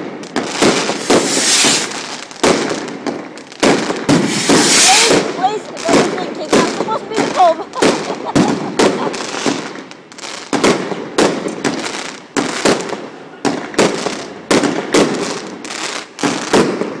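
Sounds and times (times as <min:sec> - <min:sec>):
fireworks shells bursting: 0:00.3 - 0:09.9.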